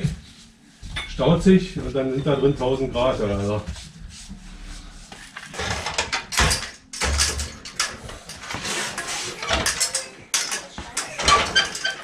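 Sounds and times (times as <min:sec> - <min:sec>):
objects rustling and clattering: 0:03.2 - 0:12.0.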